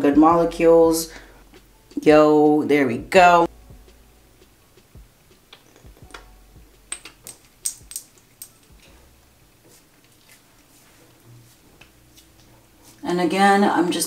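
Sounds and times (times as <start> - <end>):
bottle clicks and taps: 6.9 - 8.9.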